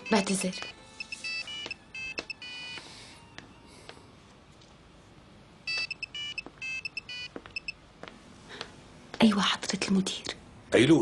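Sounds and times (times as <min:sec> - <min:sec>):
phone ringtone beeping tune: 0:00.0 - 0:03.2, 0:05.7 - 0:07.8.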